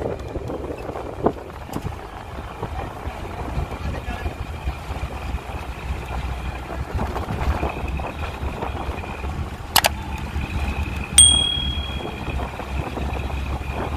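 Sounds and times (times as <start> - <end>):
truck rumbling on road: 0.0 - 13.9
bright bell ding: 11.2 - 12.4.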